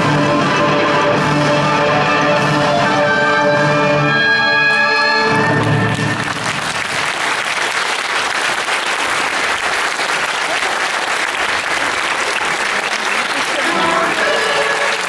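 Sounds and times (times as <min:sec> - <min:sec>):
audience applauding: 0:05.0 - 0:15.0.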